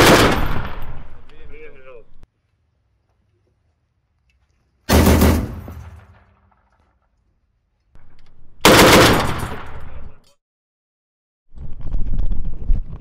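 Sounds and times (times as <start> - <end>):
automatic grenade launcher fire: 0.0 - 1.1, 4.9 - 6.8, 8.6 - 9.9.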